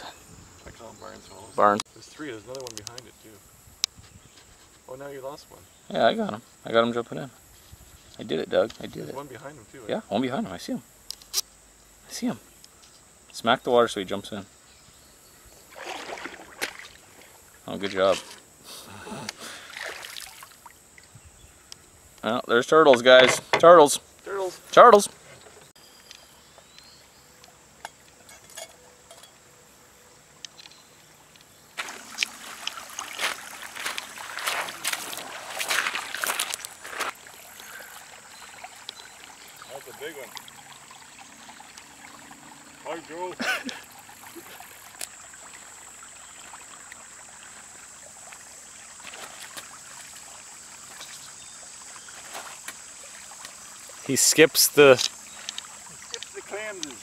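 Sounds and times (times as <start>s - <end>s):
high-pitched outdoor hiss: 0.0s - 57.0s
light splashes on water: 15.7s - 18.2s, 19.6s - 21.1s, 31.8s - 42.4s
footsteps crunching on pebbles: 31.8s - 37.4s.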